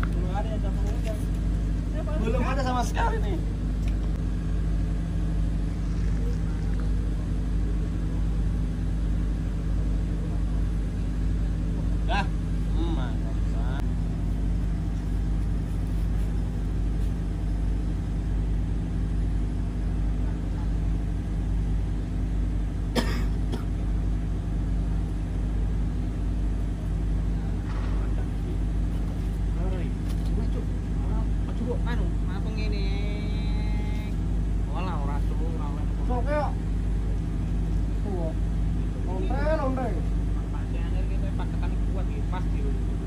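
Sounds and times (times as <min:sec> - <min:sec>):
low machinery hum: 0:00.0 - 0:43.0
ship engine droning: 0:00.0 - 0:43.0
sharp cough-like sound: 0:22.9 - 0:23.8.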